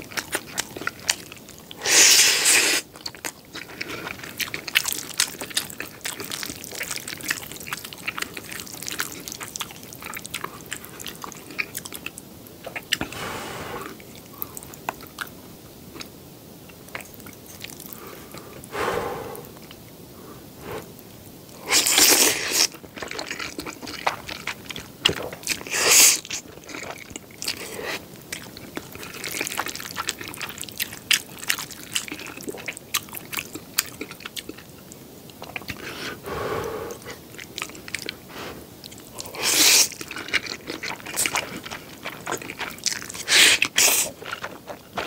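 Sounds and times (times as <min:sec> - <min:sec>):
wet chewing and mouth smacks: 0:00.0 - 0:13.2, 0:13.8 - 0:18.7, 0:21.7 - 0:36.0, 0:36.9 - 0:45.0
noodle slurping: 0:01.8 - 0:02.9.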